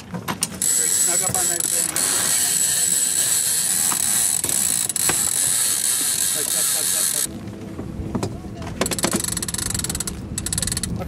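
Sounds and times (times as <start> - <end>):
winch ratcheting: 0.6 - 7.3, 8.8 - 11.0.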